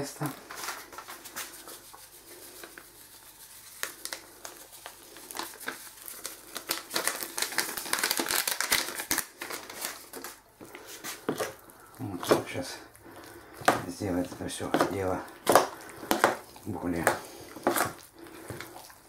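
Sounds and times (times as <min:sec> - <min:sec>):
packet crinkling and rustling: 0:00.1 - 0:19.0.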